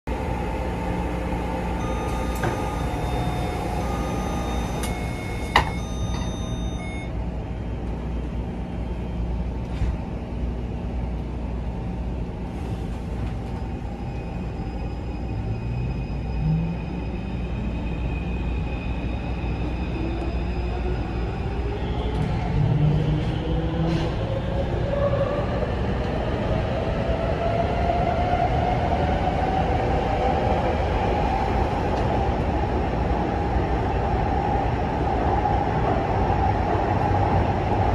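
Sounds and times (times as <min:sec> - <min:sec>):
train low rumble: 0:00.1 - 0:37.9
door chime: 0:01.8 - 0:07.1
traction motor whine: 0:01.8 - 0:07.1
doors closing knock: 0:04.8 - 0:06.4.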